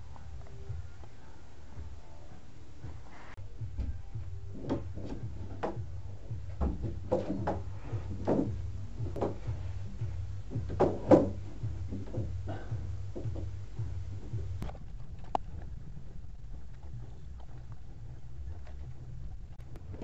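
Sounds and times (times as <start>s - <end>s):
steady low hum: 0.0s - 20.0s
plastic conduit knocks and clunks: 4.6s - 9.7s, 10.5s - 13.6s.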